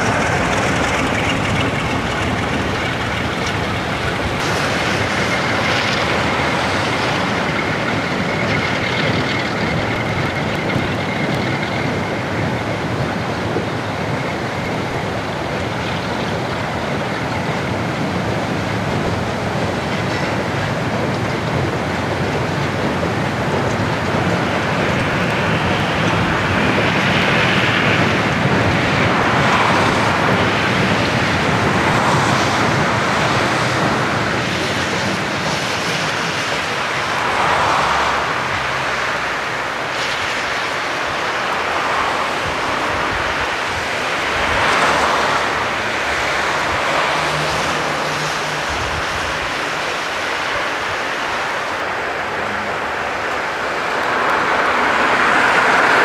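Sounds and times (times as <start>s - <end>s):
freight train wagons rumbling: 0.0s - 56.0s.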